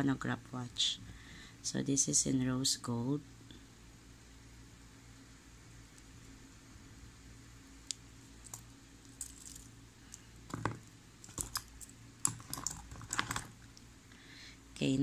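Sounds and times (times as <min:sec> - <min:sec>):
metal watch bracelet clinking: 0:08.4 - 0:09.7, 0:11.2 - 0:13.5.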